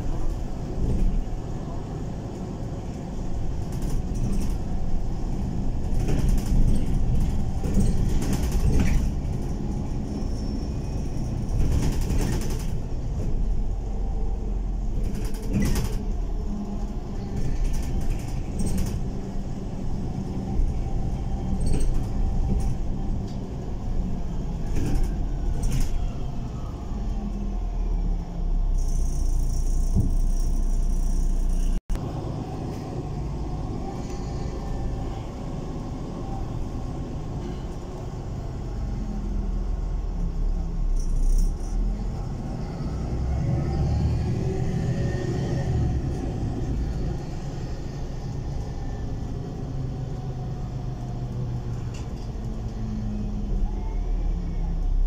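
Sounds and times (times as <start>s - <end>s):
bus engine and road rumble: 0.0s - 55.0s.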